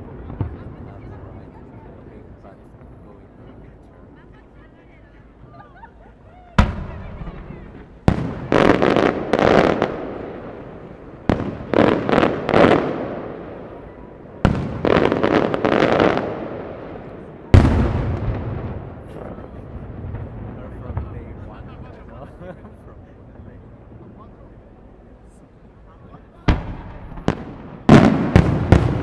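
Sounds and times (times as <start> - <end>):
fireworks bursting: 6.6 - 29.0.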